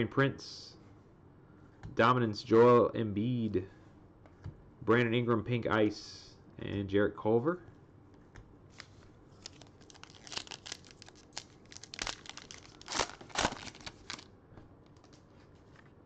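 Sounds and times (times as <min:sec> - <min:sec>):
foil wrapper crinkling and tearing: 0:08.8 - 0:14.3.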